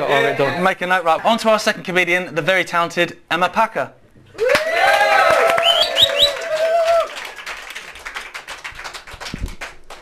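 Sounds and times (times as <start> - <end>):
audience cheering and whooping: 4.4 - 7.3
audience clapping: 4.4 - 10.0
rising whistles: 5.6 - 6.4.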